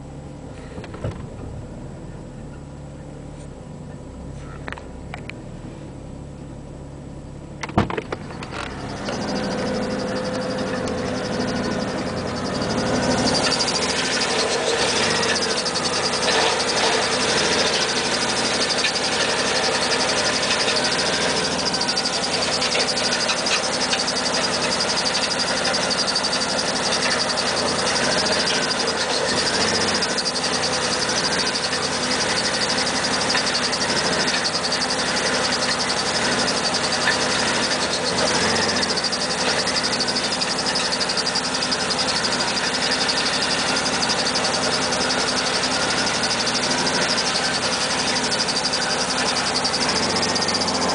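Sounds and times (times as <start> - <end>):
car engine idling: 0.0 - 50.9
car door opening click: 7.6 - 8.8.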